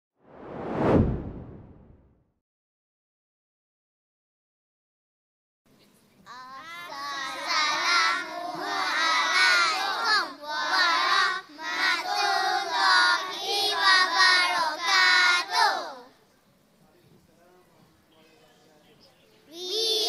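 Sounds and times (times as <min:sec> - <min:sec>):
young children singing: 0:06.3 - 0:16.1, 0:19.6 - 0:20.0.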